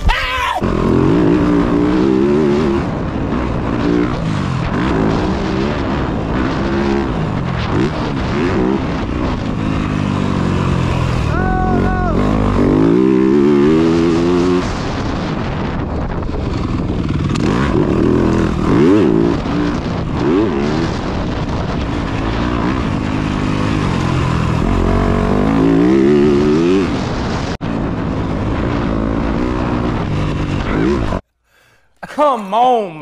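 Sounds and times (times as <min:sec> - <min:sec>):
dirt bike engine revving: 0:00.6 - 0:31.2.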